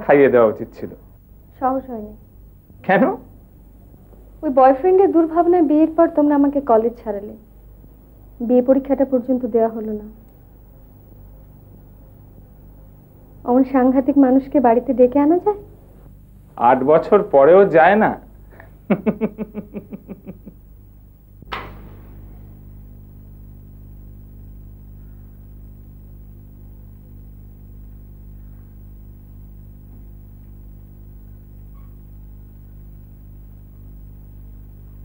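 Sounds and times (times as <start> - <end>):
low electrical hum: 0.0 - 35.0
short laugh: 18.6 - 20.6
sharp knock: 21.4 - 22.4.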